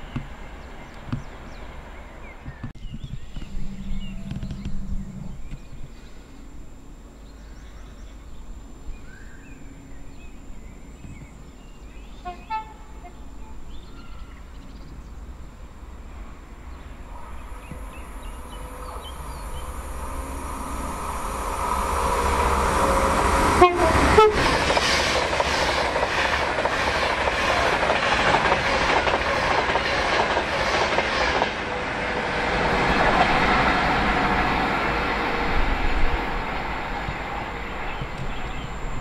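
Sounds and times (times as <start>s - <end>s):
train passing at speed: 0.0s - 2.6s, 9.5s - 39.0s
wheels clattering over rails: 21.7s - 39.0s.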